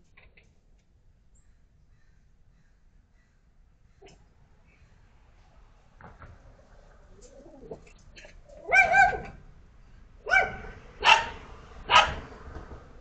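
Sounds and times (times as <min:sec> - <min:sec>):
small dog barking: 0:08.6 - 0:09.4, 0:10.2 - 0:12.2.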